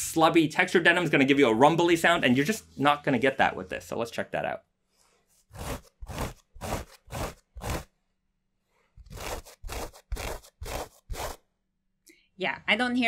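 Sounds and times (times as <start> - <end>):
denim rubbing swishes: 5.3 - 7.9, 9.0 - 11.5.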